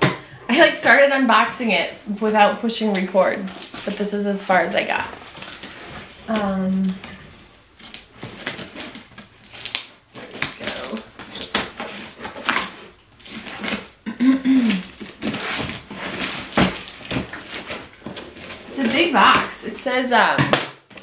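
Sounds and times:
cardboard scraping: 0:00.9 - 0:20.3
scissors cutting packing tape: 0:07.8 - 0:14.0, 0:14.6 - 0:19.8.

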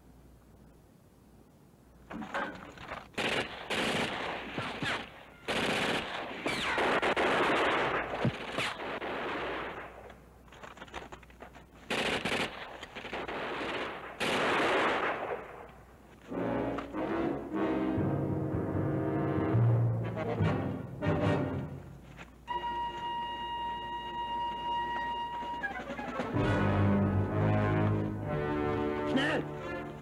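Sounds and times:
machine gun bursts: 0:03.2 - 0:09.7, 0:11.9 - 0:15.2
orchestral music with drums: 0:16.5 - 0:21.8, 0:22.6 - 0:30.0.

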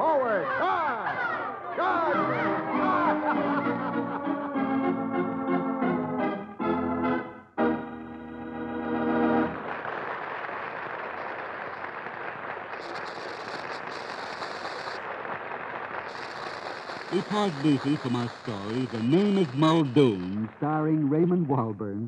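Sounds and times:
organ music: 0:01.9 - 0:09.6.

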